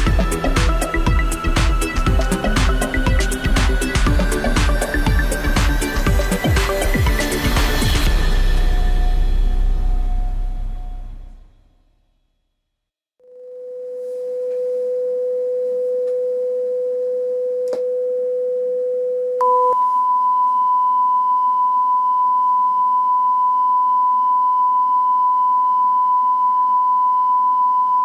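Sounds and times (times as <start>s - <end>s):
higher steady test tone: 0.0s - 11.5s, 19.4s - 28.0s
steady low test tone: 0.0s - 11.7s.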